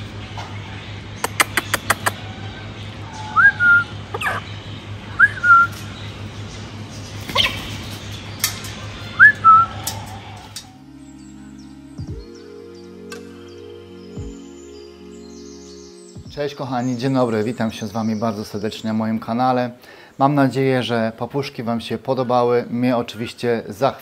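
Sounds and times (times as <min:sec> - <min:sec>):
music: 0:00.0 - 0:18.9
sharp loud bird calls: 0:00.0 - 0:19.0
quick clicks: 0:01.2 - 0:02.2
cockatoo whistles: 0:03.2 - 0:04.4, 0:05.2 - 0:05.8, 0:09.2 - 0:09.8.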